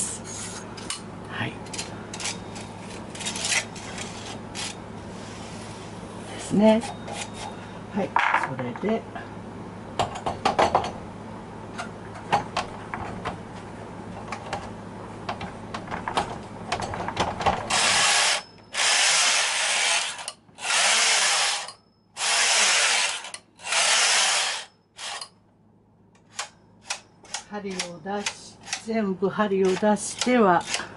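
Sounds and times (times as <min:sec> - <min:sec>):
knitting machine carriage rasping: 0:17.7 - 0:25.3, 0:29.6 - 0:30.9.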